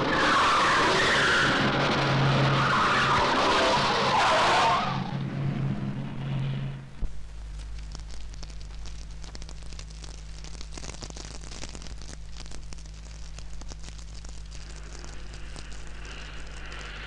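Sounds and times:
steady low hum: 0:00.0 - 0:17.0
wood fire crackling: 0:06.2 - 0:17.0.

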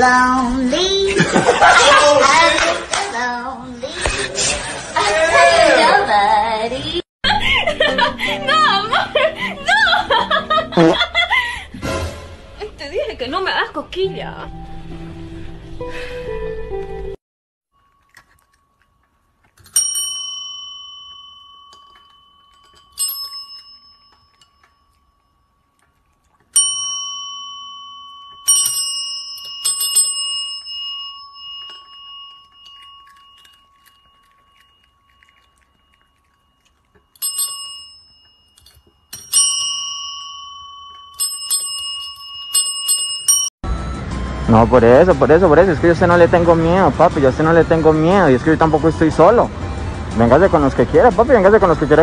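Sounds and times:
service bell dings: 0:19.7 - 0:25.2, 0:26.6 - 0:36.6, 0:37.2 - 0:45.1.

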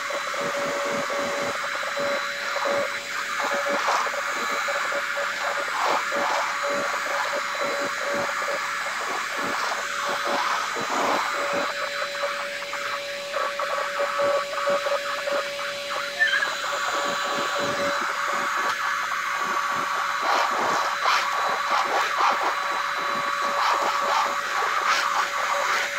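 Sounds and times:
vacuum cleaner motor whine: 0:00.0 - 0:25.9.

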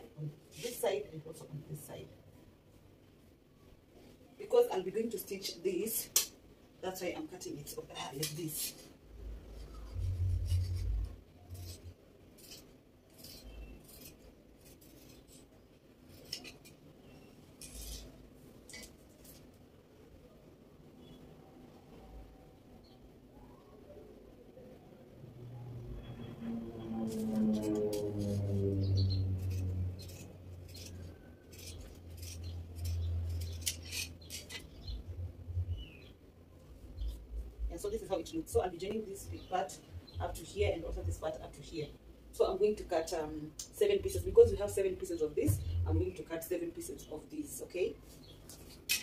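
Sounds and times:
low steady hum: 0:00.0 - 0:48.4
scissors cutting fabric: 0:09.6 - 0:15.5, 0:16.1 - 0:19.5, 0:27.0 - 0:35.0.

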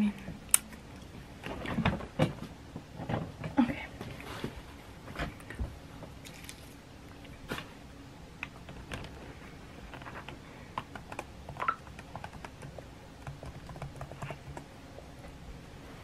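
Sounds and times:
keyboard typing clicks: 0:10.8 - 0:14.7.

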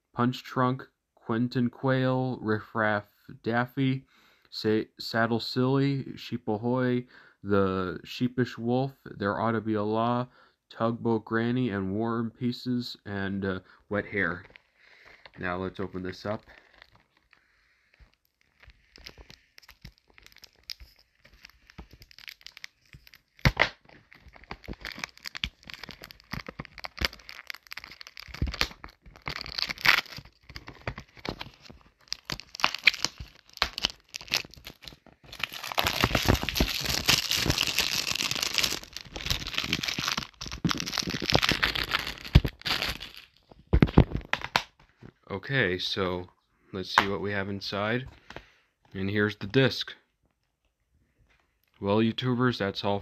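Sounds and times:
plastic shrink-wrap crinkling: 0:14.3 - 0:44.7.

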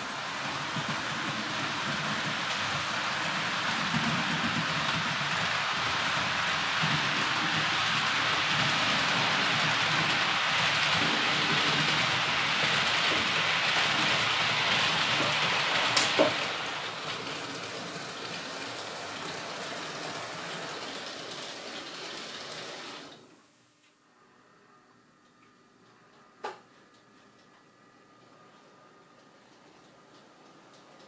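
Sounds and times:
heavy rain hiss: 0:00.0 - 0:23.3.

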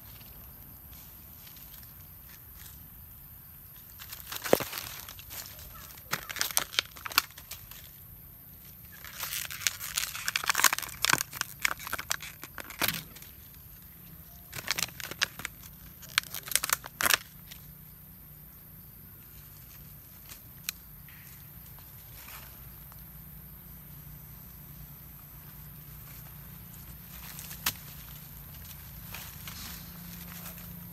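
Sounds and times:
plastic bottle crinkling: 0:08.9 - 0:13.3, 0:14.4 - 0:17.5.

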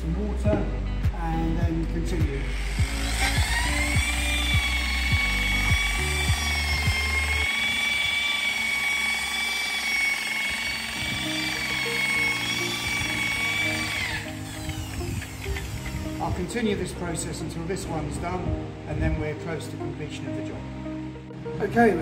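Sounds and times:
background music: 0:00.0 - 0:22.0
machine polisher motor whine: 0:02.2 - 0:16.6.

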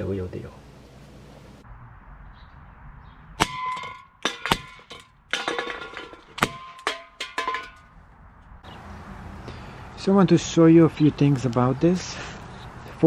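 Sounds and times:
pellets clanging on metal cans: 0:03.6 - 0:07.8
cans clattering: 0:04.2 - 0:07.8.

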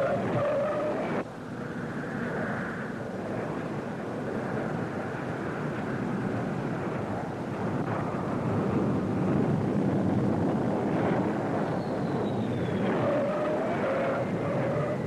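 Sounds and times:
jet engine rush: 0:00.0 - 0:15.0
wind: 0:00.0 - 0:15.0.

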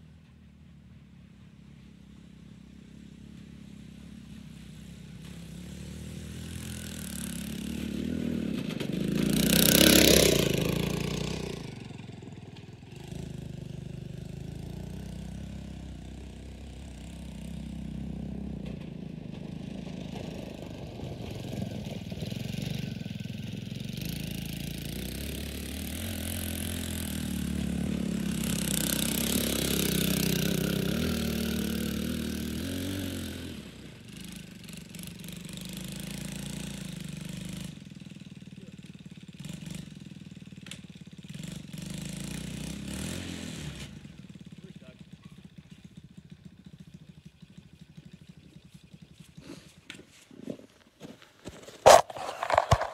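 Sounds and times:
riding mower engine passing: 0:00.0 - 0:52.9.

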